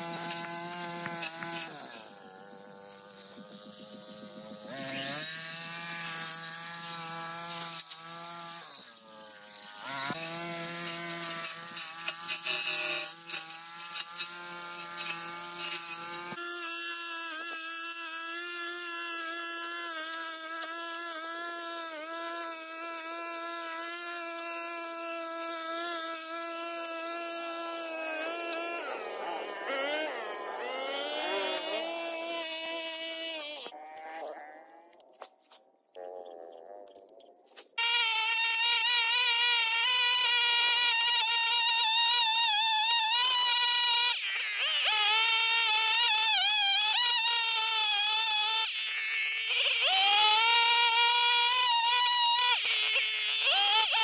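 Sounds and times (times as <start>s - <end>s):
brush cutter engine running: 0.0s - 34.5s.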